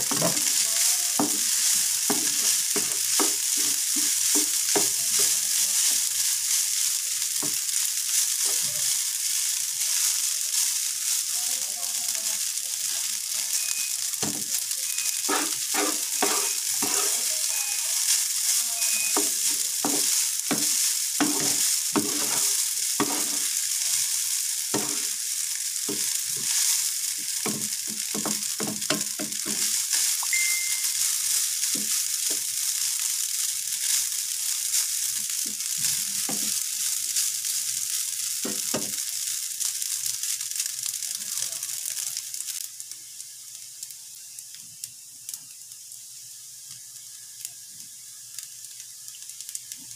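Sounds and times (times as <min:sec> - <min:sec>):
spatula scraping and tapping pan: 0:00.0 - 0:05.9, 0:14.2 - 0:23.6, 0:24.7 - 0:25.2, 0:25.8 - 0:32.5, 0:34.7 - 0:36.6
rice sizzling in a pan: 0:00.0 - 0:49.9.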